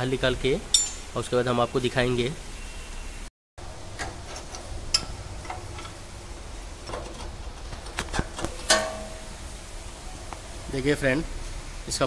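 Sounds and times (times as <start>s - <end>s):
ringing metal clink: 0.7s - 1.1s.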